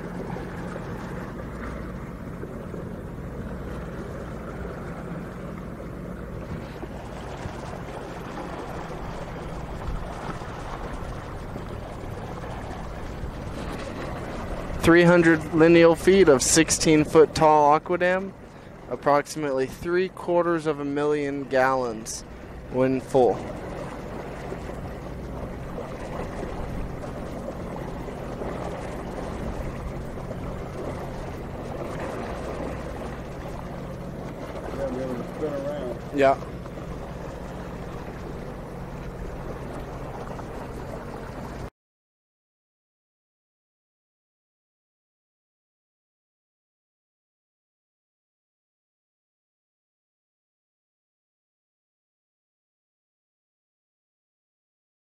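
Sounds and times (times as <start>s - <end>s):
engine running steadily: 0.0s - 41.7s
rushing water: 0.0s - 41.7s.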